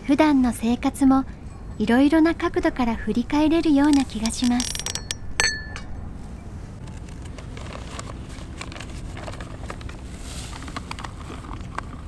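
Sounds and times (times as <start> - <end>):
low steady background noise: 0.0 - 12.0
sharp ringing clink: 4.2 - 6.1.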